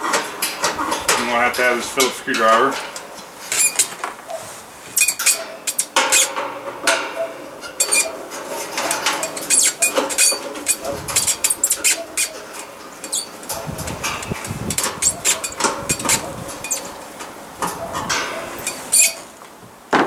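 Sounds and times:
sheet metal ringing: 0:04.9 - 0:19.3
screwdriver clicking and scraping metal: 0:05.0 - 0:06.4, 0:07.8 - 0:08.1, 0:08.7 - 0:12.4, 0:13.0 - 0:16.9.

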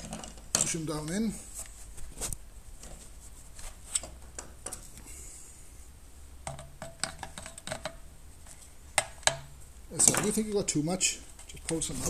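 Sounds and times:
hands clicking and tapping plastic: 0:06.4 - 0:08.0, 0:08.9 - 0:09.5.

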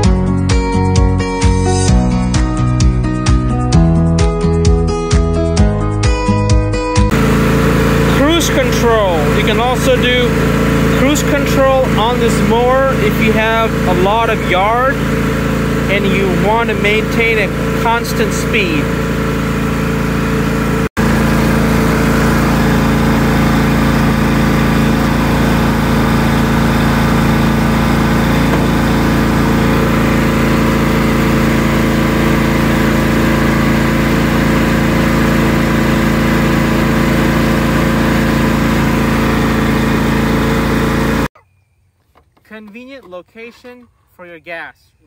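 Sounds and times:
lawn tractor engine running: 0:07.1 - 0:41.4.

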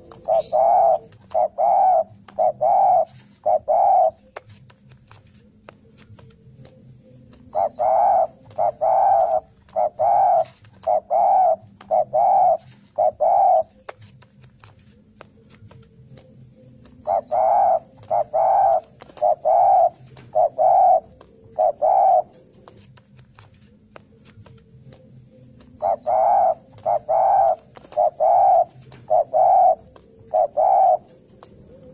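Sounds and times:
dove cooing rapidly: 0:00.0 - 0:04.4, 0:06.6 - 0:13.9, 0:16.1 - 0:22.9, 0:24.9 - 0:31.9.

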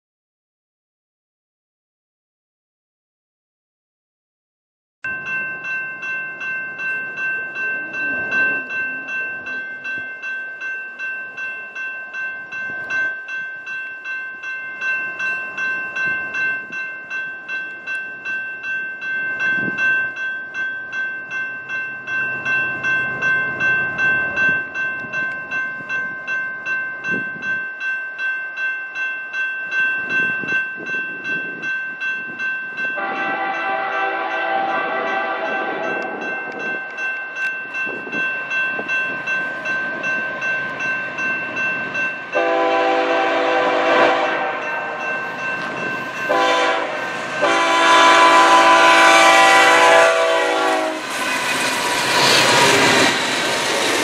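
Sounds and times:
crossing warning bell ringing: 0:05.0 - 0:54.0
train rumble: 0:30.0 - 0:54.0
locomotive air horn: 0:33.0 - 0:36.0, 0:42.4 - 0:45.0, 0:46.3 - 0:51.2.

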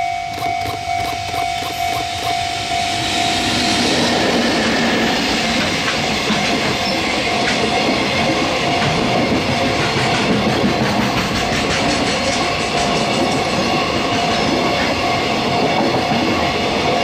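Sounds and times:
level crossing warning bell: 0:00.0 - 0:04.8
electric locomotive passing: 0:00.0 - 0:17.0
train wagons running past: 0:00.0 - 0:17.0.

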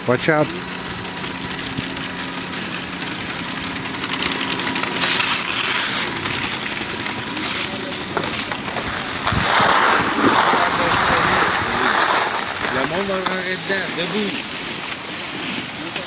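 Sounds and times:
conveyor motor hum and rattle: 0:00.0 - 0:09.0
skis hissing across snow: 0:07.3 - 0:16.0.

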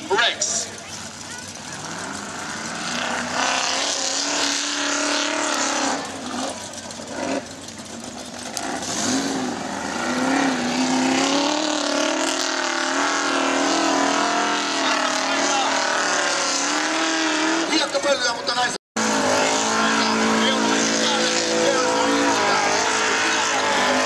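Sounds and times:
buggy engine revving: 0:00.0 - 0:24.0.

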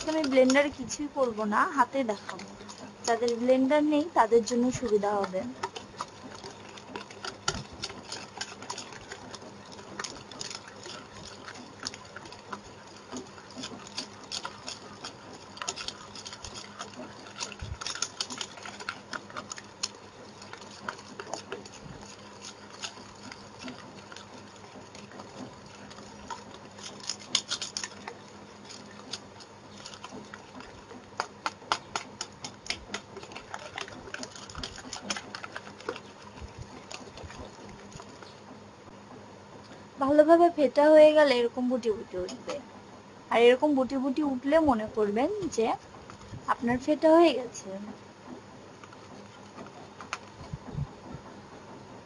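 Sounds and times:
whisk clicking against bowl: 0:00.0 - 0:38.5, 0:42.2 - 0:42.7, 0:48.7 - 0:50.6.

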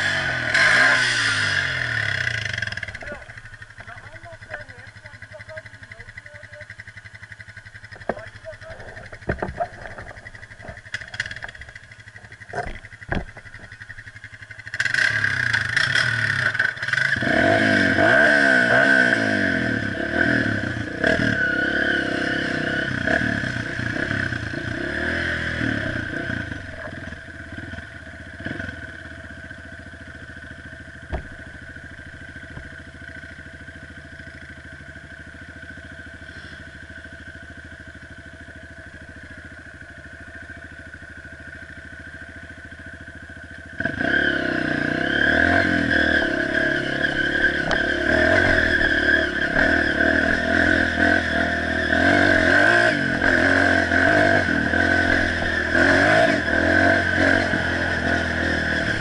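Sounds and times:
dirt bike engine revving: 0:00.0 - 0:38.0, 0:41.5 - 0:59.0
knocks: 0:31.1 - 0:31.4.

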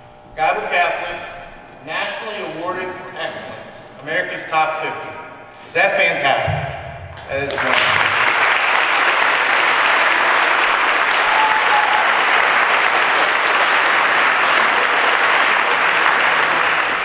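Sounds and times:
audience applauding: 0:07.1 - 0:17.0.

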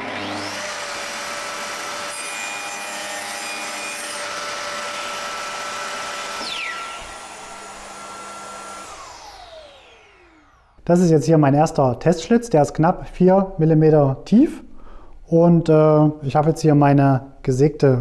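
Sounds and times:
saw cutting into wood: 0:00.0 - 0:10.7
table saw whining: 0:00.0 - 0:10.8.

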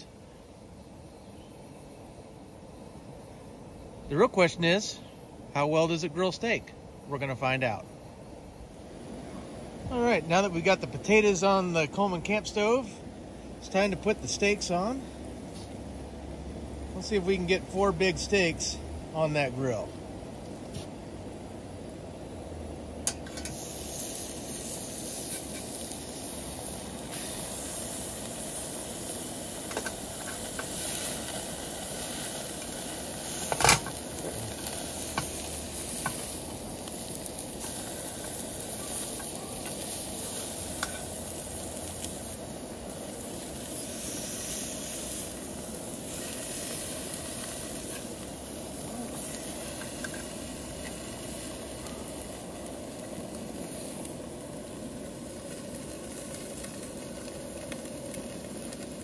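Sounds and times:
steaks sizzling on a grill: 0:09.9 - 0:12.9, 0:22.0 - 0:59.0.

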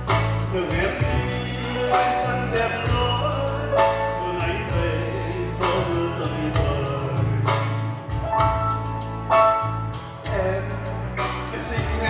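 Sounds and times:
steady drum beat: 0:00.0 - 0:01.8, 0:02.6 - 0:11.0
electronic keyboard: 0:00.0 - 0:12.0
man singing into microphone: 0:00.5 - 0:07.8, 0:10.2 - 0:12.0.

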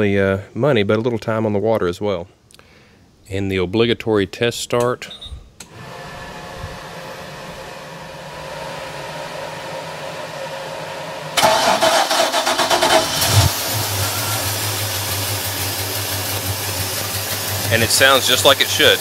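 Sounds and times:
electric blower humming: 0:05.6 - 0:19.0
engine starter cranking: 0:11.4 - 0:18.3
boat engine idling: 0:13.1 - 0:19.0.

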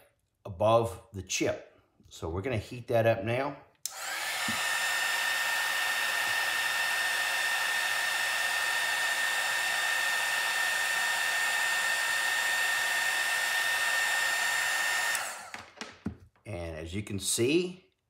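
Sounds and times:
heat gun airflow with high whine: 0:03.9 - 0:15.8.

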